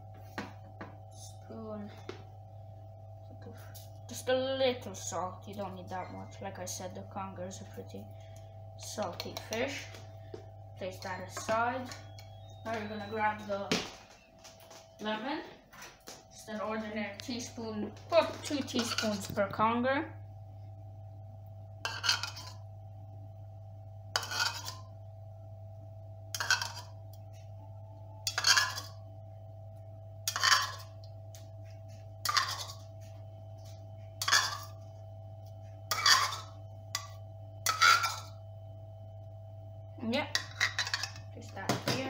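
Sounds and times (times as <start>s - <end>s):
low hum: 0.0s - 42.0s
teaspoon scraping plastic bowl: 18.5s - 19.4s, 21.9s - 22.6s, 24.2s - 24.9s, 26.4s - 27.0s, 28.2s - 29.0s, 30.3s - 30.9s, 31.9s - 33.1s, 34.2s - 34.8s, 35.9s - 38.4s, 40.3s - 41.2s.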